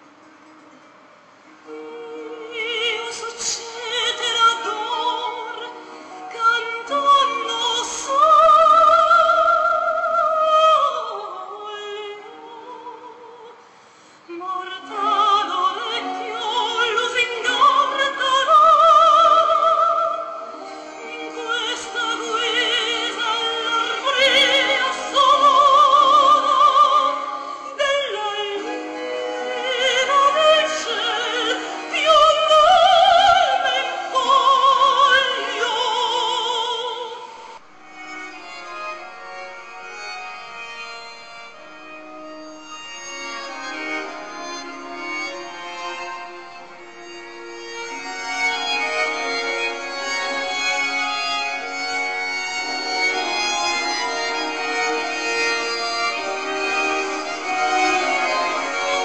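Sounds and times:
operatic singing: 0:01.6 - 0:13.6, 0:14.3 - 0:37.6, 0:47.8 - 0:59.0
instrumental accompaniment: 0:19.1 - 0:36.3, 0:37.5 - 0:59.0.

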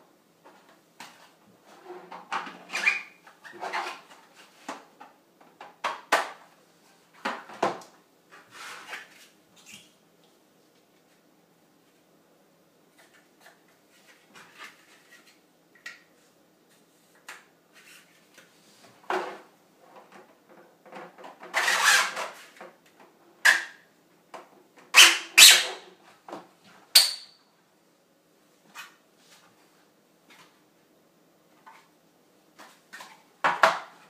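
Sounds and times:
plastic scraping slide: 0:08.3 - 0:09.4, 0:21.4 - 0:22.6.

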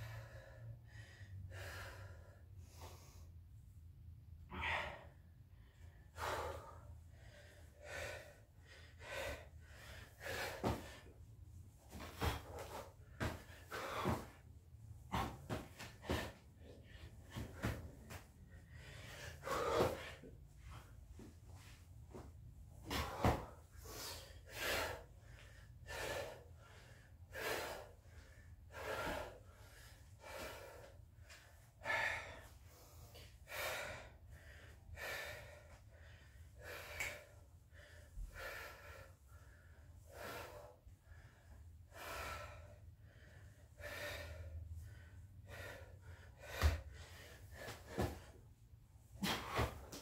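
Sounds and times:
man breathing heavily: 0:00.0 - 0:50.0.

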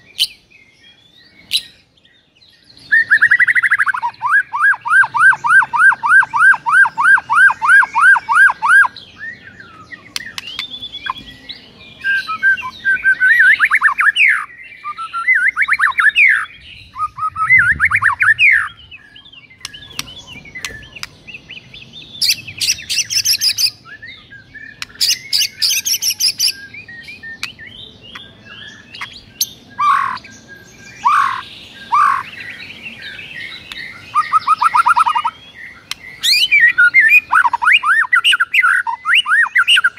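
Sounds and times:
bird singing varied song: 0:00.0 - 0:39.9
harsh buzzy bird calls: 0:12.3 - 0:39.9.

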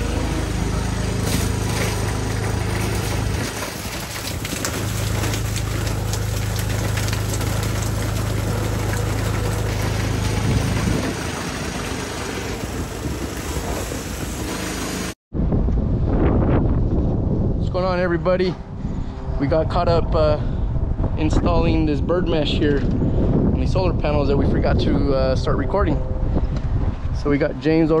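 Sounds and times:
small engine running: 0:00.0 - 0:15.2.

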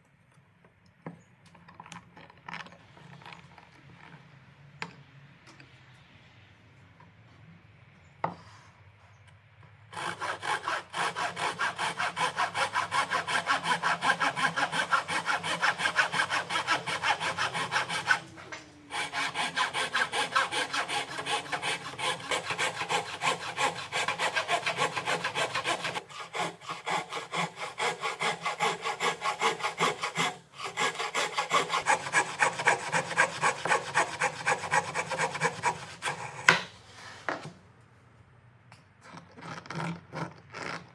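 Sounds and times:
hand saw cutting wood: 0:09.9 - 0:37.5, 0:39.0 - 0:40.9.

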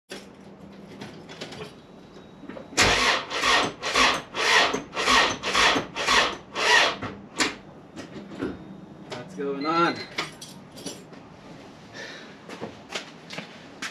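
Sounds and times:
starter motor cranking engine: 0:02.8 - 0:07.0.

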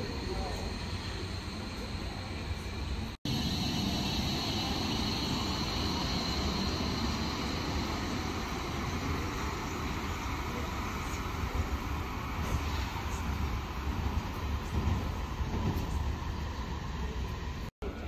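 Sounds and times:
tram rumbling on rails: 0:00.0 - 0:18.0
high whine: 0:03.3 - 0:09.9.

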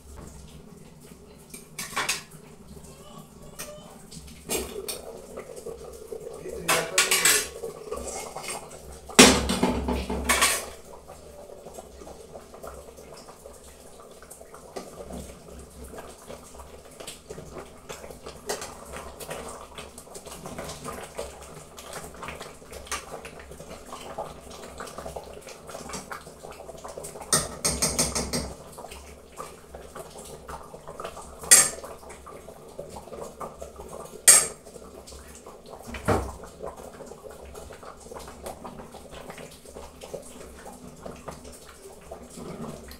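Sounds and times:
pot lid clattering: 0:06.7 - 0:07.6, 0:31.5 - 0:31.8, 0:34.3 - 0:34.6.

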